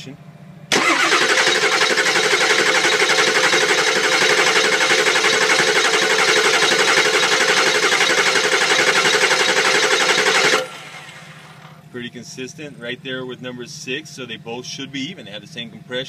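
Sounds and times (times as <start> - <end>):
diesel engine cranking on starter: 0.7 - 11.8.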